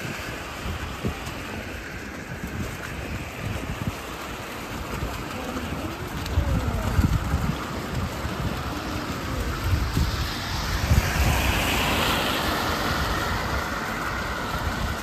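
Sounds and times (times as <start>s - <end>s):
car tyres hissing on wet road: 0.0s - 15.0s.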